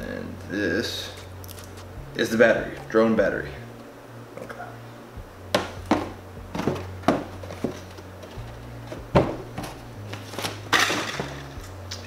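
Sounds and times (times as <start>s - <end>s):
case knocks and thumps: 5.5s - 9.8s.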